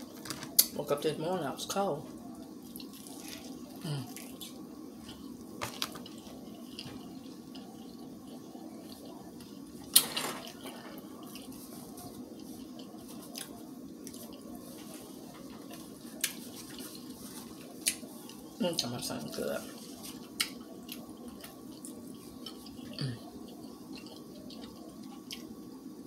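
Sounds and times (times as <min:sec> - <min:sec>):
steady low hum: 0:00.0 - 0:26.0
person chewing with smacking: 0:02.2 - 0:25.7.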